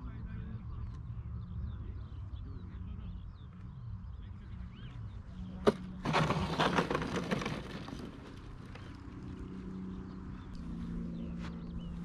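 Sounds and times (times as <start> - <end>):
scraping and rustling: 6.0 - 8.4
steady low hum: 8.4 - 12.0.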